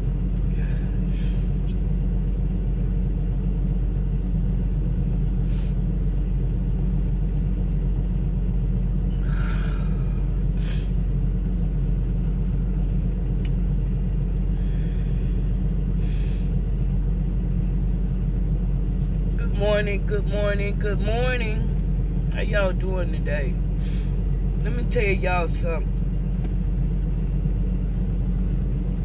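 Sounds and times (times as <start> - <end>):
diesel engine rumble: 0.0 - 29.0
person sniffing: 1.1 - 1.5, 10.6 - 11.0, 16.0 - 16.5
breathy exhale: 9.2 - 11.0, 14.5 - 16.6.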